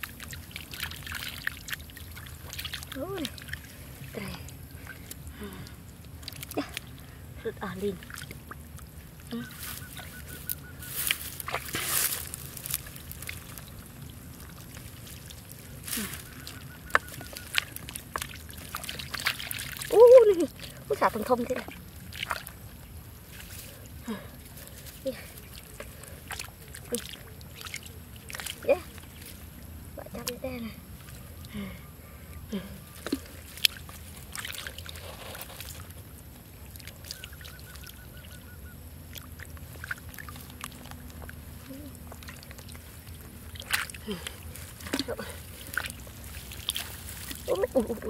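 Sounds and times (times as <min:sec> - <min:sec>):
hands splashing in muddy water: 0:00.0 - 0:04.0, 0:09.4 - 0:22.6, 0:33.0 - 0:37.9, 0:39.1 - 0:48.0.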